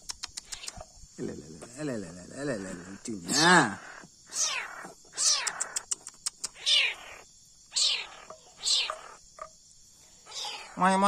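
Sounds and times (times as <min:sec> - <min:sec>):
kitten mewing: 0:00.4 - 0:00.9, 0:03.3 - 0:09.2, 0:10.3 - 0:10.8
short clicks: 0:05.3 - 0:06.6.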